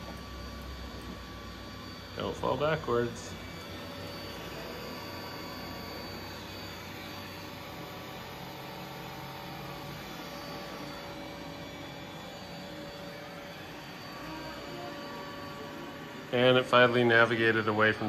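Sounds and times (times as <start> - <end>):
faint steady whine: 0.0 - 18.0
robot vacuum suction motor whir: 3.4 - 16.4.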